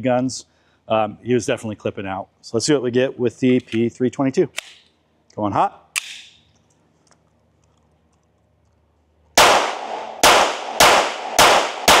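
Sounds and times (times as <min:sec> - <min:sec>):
pistol shots with ringing tail: 0:09.4 - 0:12.0.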